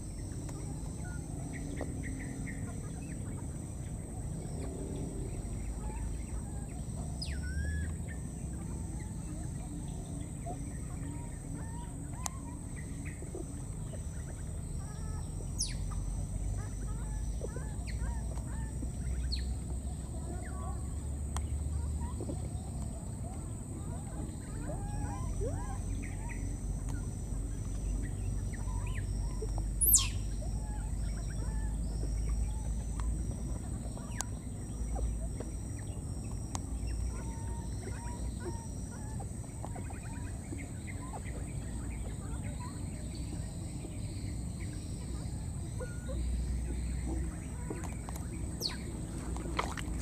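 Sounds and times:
outdoor background noise: 0.0s - 50.0s.

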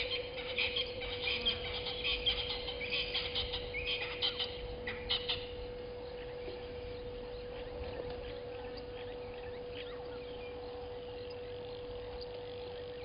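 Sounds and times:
birds chirping: 0.0s - 13.0s
steady low hum: 0.0s - 13.0s.

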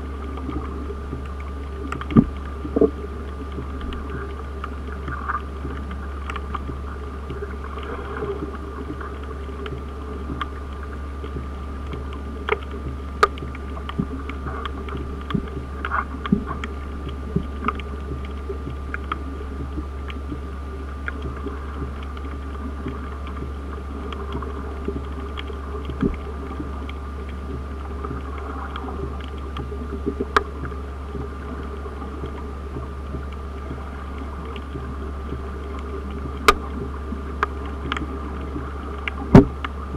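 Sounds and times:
underwater low hum: 0.0s - 39.9s
sharp clicks and ticks: 9.6s - 20.4s.

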